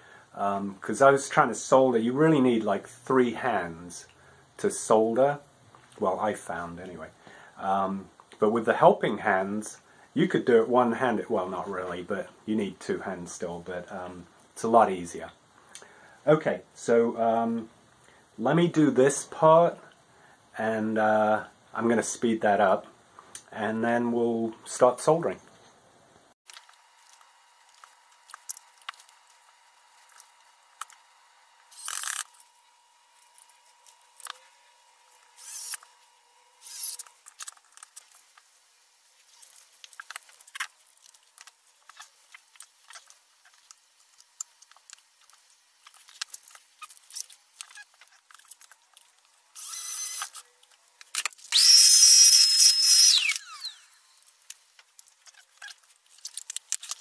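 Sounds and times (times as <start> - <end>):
electric drill whining: 31.6 - 32.6, 35.1 - 37.2, 49.5 - 50.5, 51.5 - 54.2.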